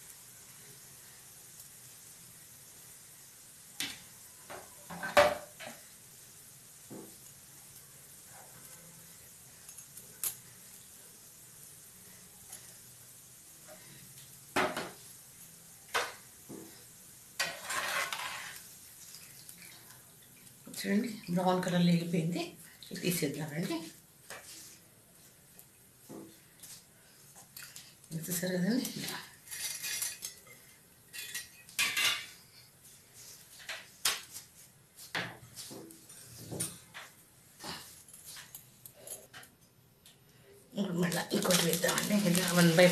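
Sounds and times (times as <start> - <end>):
oil sizzling: 0.0 - 36.4, 40.8 - 42.9
spoon scraping frying pan: 17.4 - 18.7, 28.8 - 32.4
utensils and plate clinking: 28.8 - 32.4.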